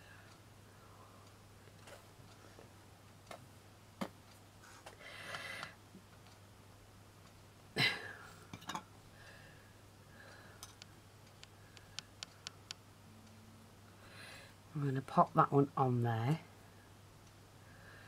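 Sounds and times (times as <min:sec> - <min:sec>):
steady low hum: 0:00.0 - 0:18.0
light ticks: 0:10.3 - 0:13.4.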